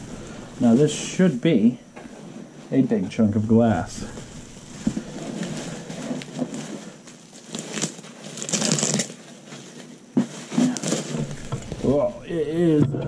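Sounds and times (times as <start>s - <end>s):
bubble wrap rustling and crinkling: 0.0s - 12.8s.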